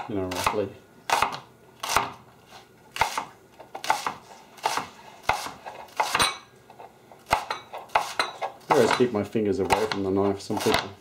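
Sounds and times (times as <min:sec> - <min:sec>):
knife chopping leeks on a board: 0:00.3 - 0:02.2, 0:03.0 - 0:06.2, 0:07.3 - 0:08.2, 0:09.6 - 0:11.0.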